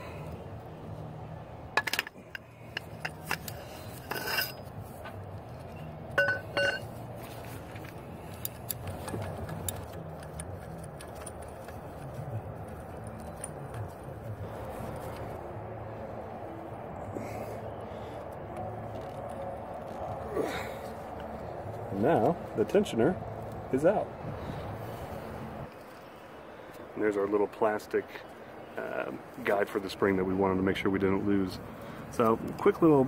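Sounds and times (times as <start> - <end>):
low steady hum: 0.0 - 33.0
metal tools clinking: 1.7 - 15.3.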